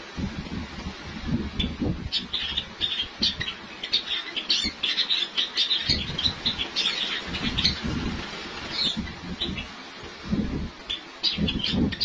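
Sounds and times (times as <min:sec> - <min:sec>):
sparrows chirping: 0:01.6 - 0:09.8, 0:10.7 - 0:12.0.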